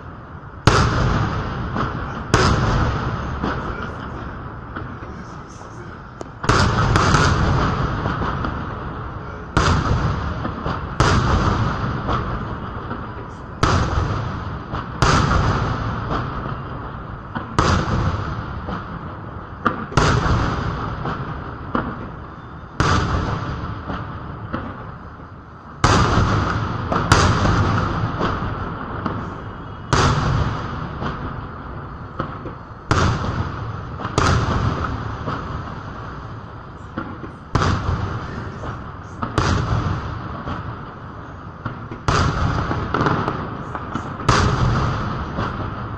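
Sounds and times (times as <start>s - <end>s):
firework shells booming: 0.0s - 45.9s.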